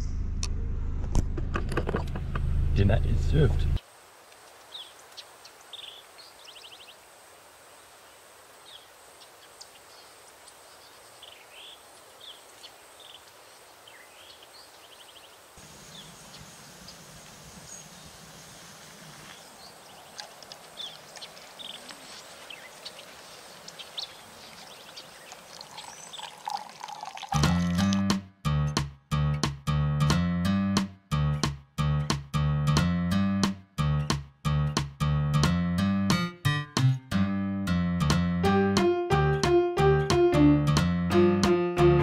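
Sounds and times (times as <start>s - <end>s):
low rumble: 0.0s - 3.8s
small birds chirping: 4.5s - 7.1s, 7.7s - 27.3s.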